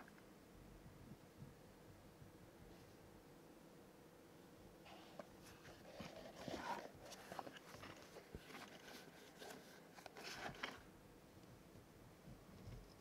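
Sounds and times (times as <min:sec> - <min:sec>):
leather pouch rustling and clicking: 0:05.4 - 0:10.8.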